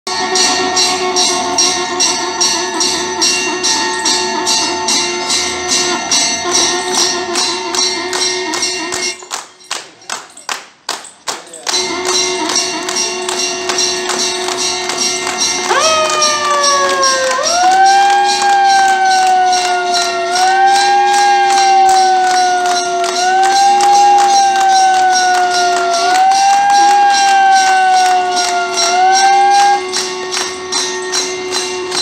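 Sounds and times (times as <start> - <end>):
people clapping in time: 0.1 - 32.0
music with steady beat: 11.6 - 32.0.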